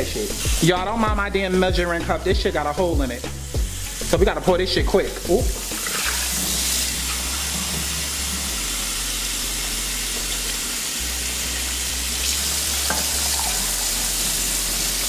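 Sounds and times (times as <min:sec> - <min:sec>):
water splashing into sink: 0:05.5 - 0:08.7, 0:12.2 - 0:15.0
faucet running into cup: 0:05.5 - 0:15.0.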